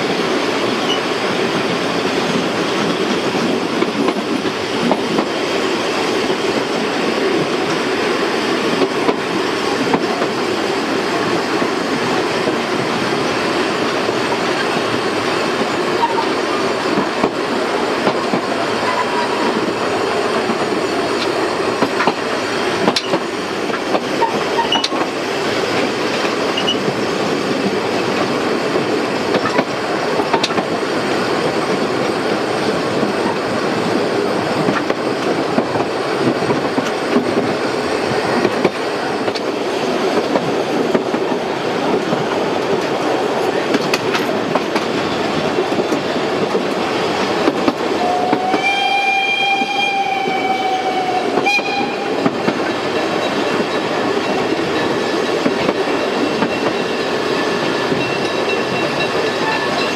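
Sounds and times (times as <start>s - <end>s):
wheels rumbling and rattling on rails: 0.0s - 59.9s.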